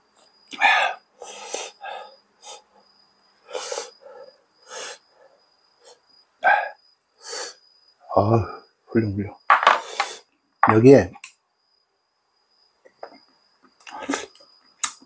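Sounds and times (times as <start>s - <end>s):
person puffing hissing breaths: 0.5s - 2.7s, 3.4s - 5.1s, 5.8s - 7.6s, 9.7s - 10.3s, 13.8s - 14.4s.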